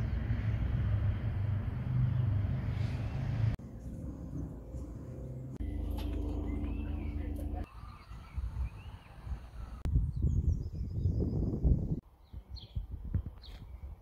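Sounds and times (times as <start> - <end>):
low rumble: 0.0 - 8.7.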